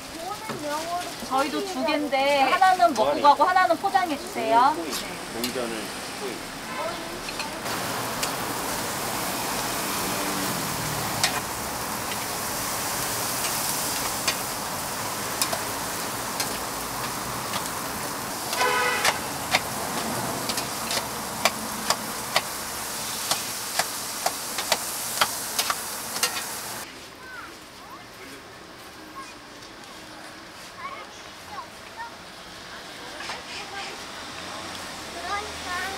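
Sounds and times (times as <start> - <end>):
toast sizzling on a griddle: 0.0 - 28.0, 29.1 - 35.9
utensils clicking and tapping: 11.2 - 11.5, 13.4 - 14.5, 15.3 - 17.8, 18.4 - 22.6, 23.3 - 26.6
car horn toot: 18.5 - 19.3.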